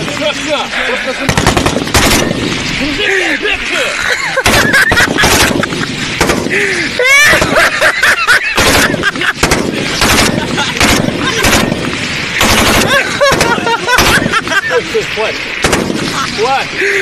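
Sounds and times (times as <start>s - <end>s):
rifle firing automatic bursts: 1.3s - 2.5s, 4.4s - 6.5s, 8.5s - 14.3s, 15.6s - 16.1s.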